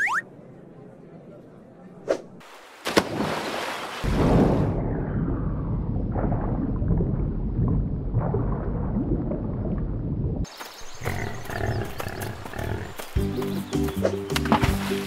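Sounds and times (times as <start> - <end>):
low rough rumbling: 4.2 - 10.4.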